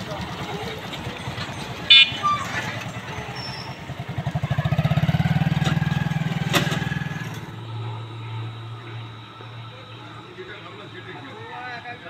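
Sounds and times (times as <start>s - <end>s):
motorcycle engine passing: 0.0s - 11.0s
steady low hum: 5.9s - 12.0s.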